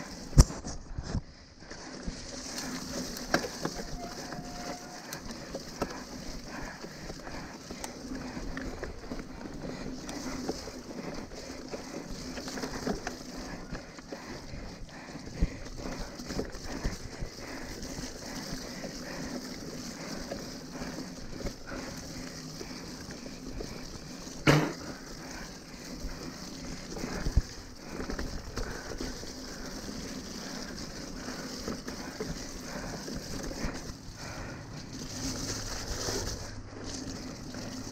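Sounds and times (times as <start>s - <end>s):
bike rattles and knocks: 0.0s - 37.9s
bike tyre and drivetrain noise: 0.0s - 37.9s
sharp clunk: 24.5s - 24.8s.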